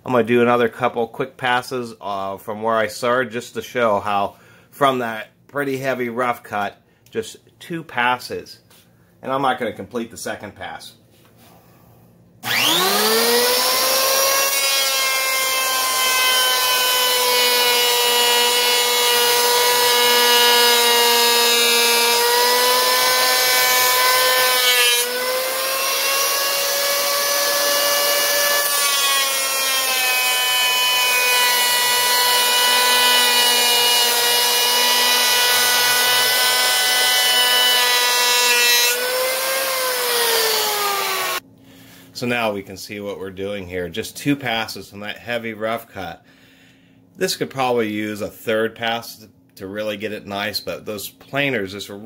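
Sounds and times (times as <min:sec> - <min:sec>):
electric planer whining: 0:12.4 - 0:41.4.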